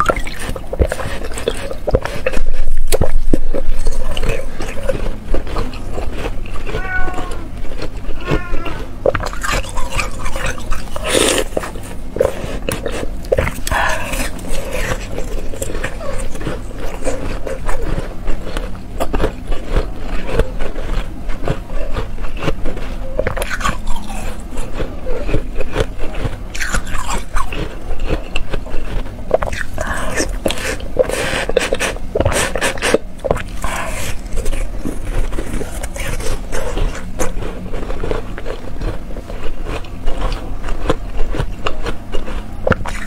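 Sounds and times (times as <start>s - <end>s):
ice being bitten and chewed: 0.0s - 43.0s.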